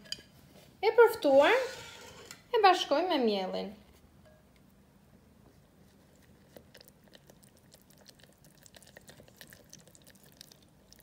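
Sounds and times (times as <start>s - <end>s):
fork stirring in metal bowl: 1.4s - 2.4s.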